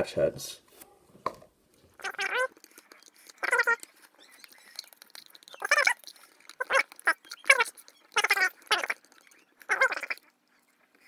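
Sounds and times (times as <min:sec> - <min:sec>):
animal crying: 0:02.0 - 0:10.3.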